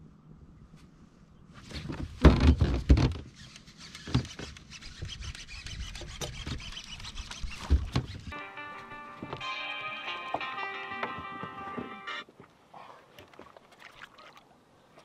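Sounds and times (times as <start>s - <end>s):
background music: 8.3s - 12.3s.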